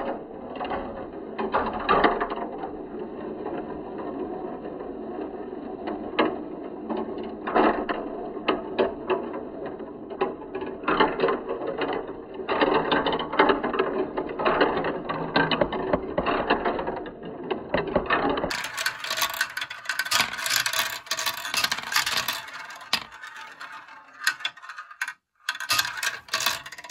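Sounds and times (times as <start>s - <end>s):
marbles rolling in plastic run: 0.1s - 26.9s
marbles clicking on plastic: 17.7s - 26.9s.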